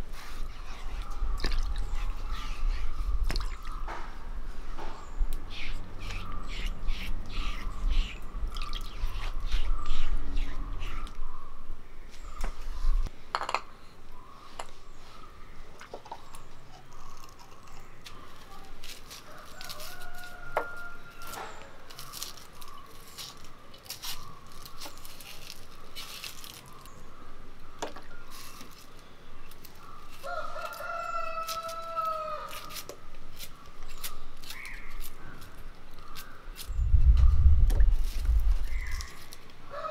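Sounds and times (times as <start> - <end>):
knife peeling shallot skins: 5.2 - 11.3, 16.8 - 26.9, 28.3 - 36.8
rooster crowing: 19.3 - 21.4, 30.2 - 32.5, 39.7 - 39.9.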